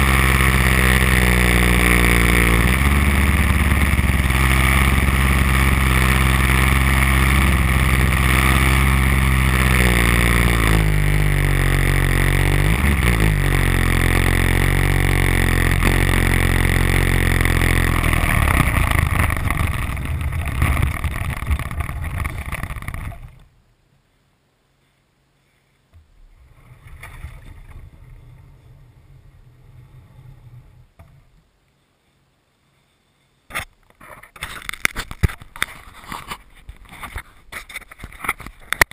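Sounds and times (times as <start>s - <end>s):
model plane engine running: 0.0s - 23.4s
faint rushing noise: 0.0s - 33.6s.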